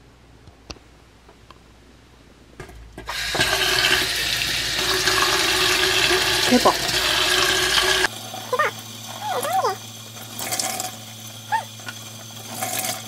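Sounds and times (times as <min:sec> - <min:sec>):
tap water running onto sponge: 0:03.1 - 0:08.1.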